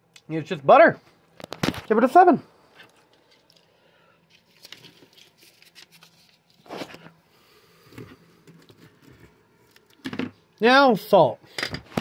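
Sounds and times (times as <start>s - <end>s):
paper plates rustling: 4.3s - 7.2s.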